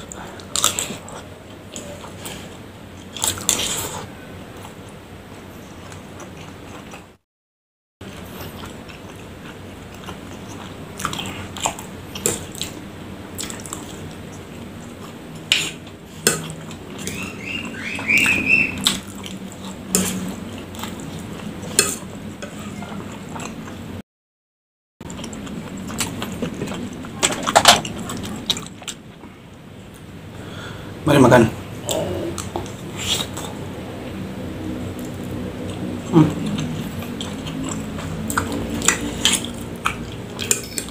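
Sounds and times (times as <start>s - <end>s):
chewing noodles: 34.8s - 40.9s.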